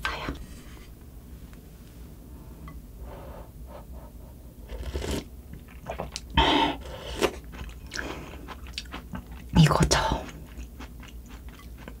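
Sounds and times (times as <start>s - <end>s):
person slurping broth: 4.6s - 5.3s, 5.9s - 8.0s
chewing: 7.2s - 12.0s.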